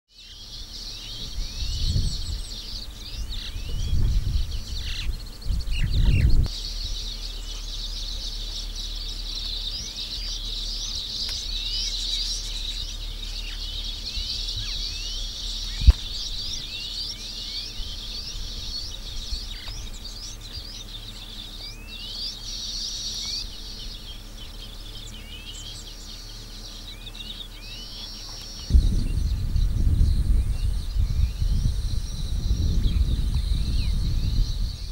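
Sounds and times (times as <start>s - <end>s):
birds chirping: 0.1s - 34.9s
low thuds: 28.7s - 34.7s.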